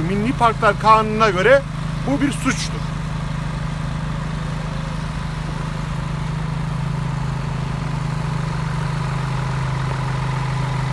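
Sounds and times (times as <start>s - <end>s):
diesel engine running: 0.0s - 10.9s.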